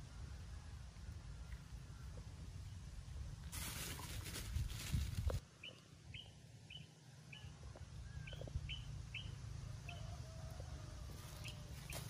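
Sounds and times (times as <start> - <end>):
small bird chirping: 5.6 - 10.2, 11.2 - 12.0.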